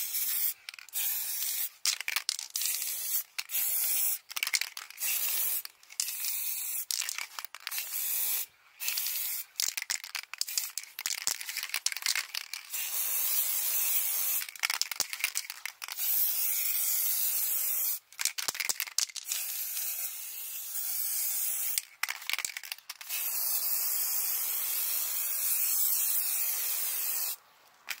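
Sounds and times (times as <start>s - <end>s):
aerosol spray can hissing: 0.0s - 4.2s, 5.0s - 7.0s, 7.7s - 10.8s, 12.6s - 15.1s, 16.0s - 18.0s, 19.3s - 21.8s, 23.0s - 27.4s.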